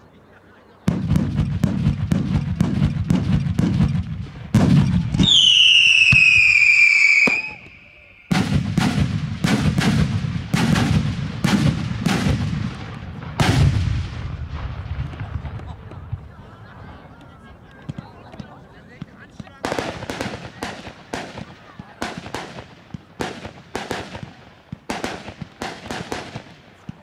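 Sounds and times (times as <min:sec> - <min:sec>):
falling firework whistle: 0:05.2 - 0:08.4.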